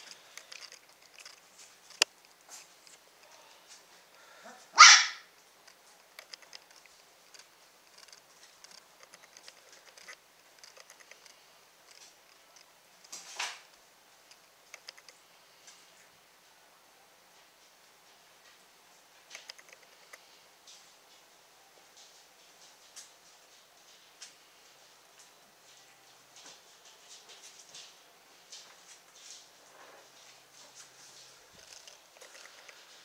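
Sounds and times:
puppy barking: 4.4 - 5.3.

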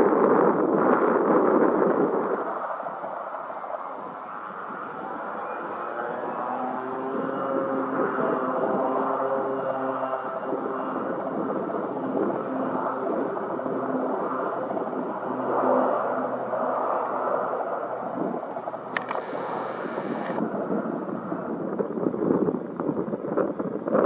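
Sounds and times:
aircraft engine rumble: 15.2 - 20.5
sharp click: 18.9 - 20.4.

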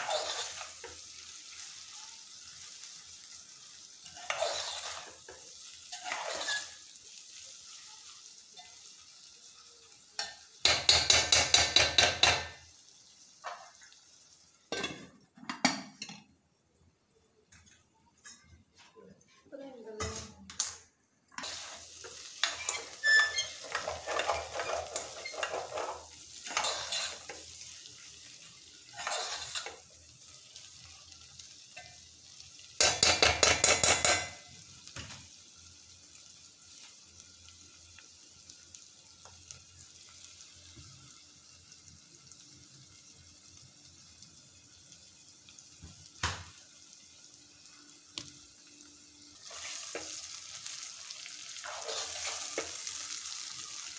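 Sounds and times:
metal utensil scraping a pot: 0.0 - 0.7, 4.0 - 5.2, 5.9 - 6.9, 22.4 - 27.4, 28.9 - 29.8, 51.6 - 52.7
curry sizzling in oil: 0.0 - 16.1, 20.8 - 53.9.

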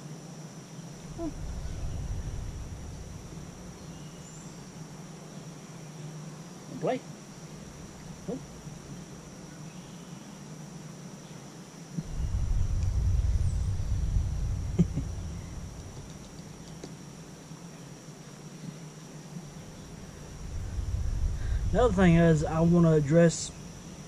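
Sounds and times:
high-pitched insect drone: 0.8 - 10.7, 12.0 - 17.3, 19.2 - 24.0
low rumble: 0.9 - 5.4, 7.4 - 9.5, 12.0 - 17.3, 19.4 - 24.0.

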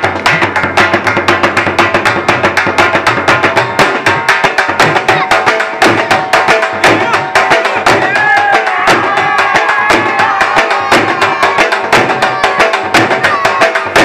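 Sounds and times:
dhol drum played fast: 0.0 - 14.0.

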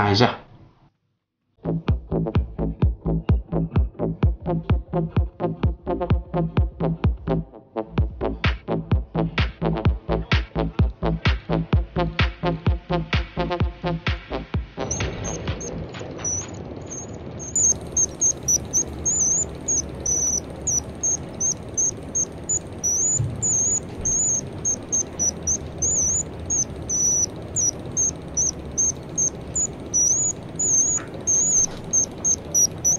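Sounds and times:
mechanical bird whistle chirping: 14.9 - 32.9.

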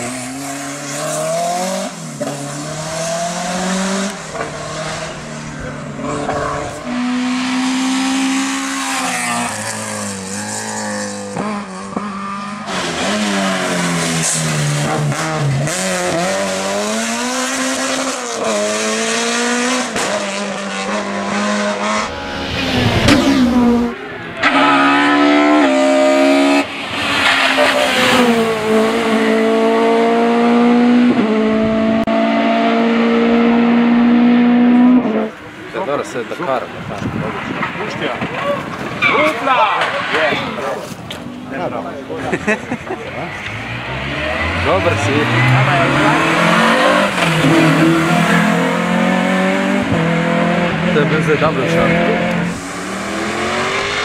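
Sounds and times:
race car engines revving: 0.0 - 54.0.

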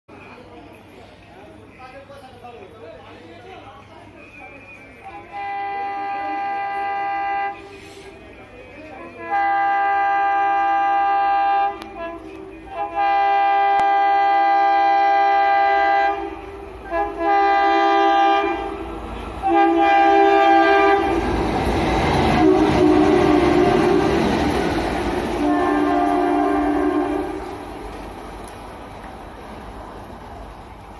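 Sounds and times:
locomotive rumble and rail clatter: 0.1 - 30.9
locomotive horn blasts: 5.3 - 7.9, 9.2 - 18.8, 19.4 - 21.3, 22.3 - 24.4, 25.4 - 27.5.

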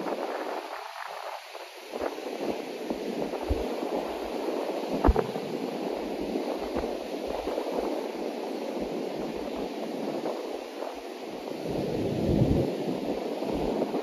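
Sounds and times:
sea surf breaking on beach: 1.4 - 14.0
wind buffeting microphone: 4.9 - 8.0, 11.6 - 14.0.

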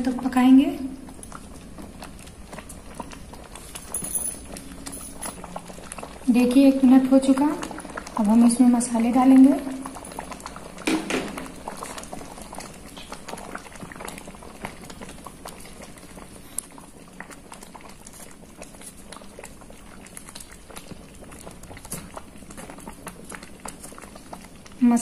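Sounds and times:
thick chutney bubbling in a pan: 0.0 - 25.0.

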